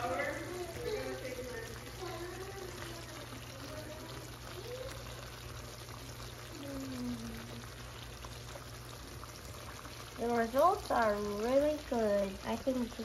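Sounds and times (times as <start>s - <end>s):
faint voices: 0.0s - 7.7s
watery liquid hiss: 0.0s - 13.0s.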